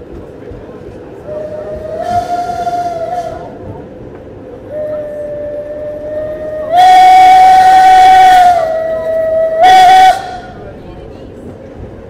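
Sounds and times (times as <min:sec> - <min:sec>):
steam locomotive whistle: 0:01.2 - 0:03.6, 0:04.6 - 0:10.6.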